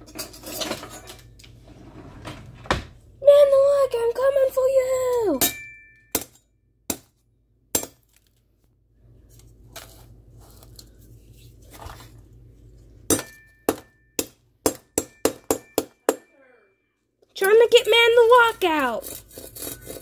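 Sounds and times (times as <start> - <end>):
metallic ring: 5.4 - 6.6, 13.1 - 14.2.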